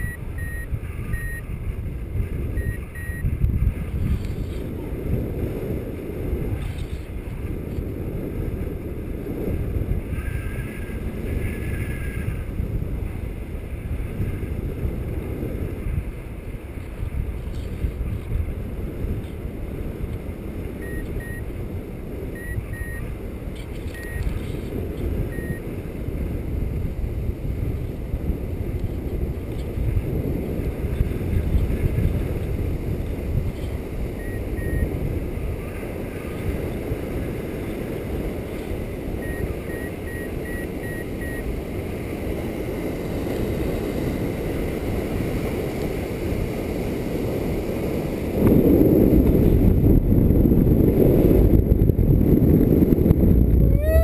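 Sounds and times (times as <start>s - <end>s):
short high variometer beeps: 0.0s - 1.5s, 2.5s - 3.4s, 20.8s - 21.5s, 22.3s - 23.2s, 23.8s - 24.5s, 25.2s - 25.7s, 34.1s - 35.0s, 39.2s - 41.5s
wind buffeting microphone: 0.0s - 54.0s.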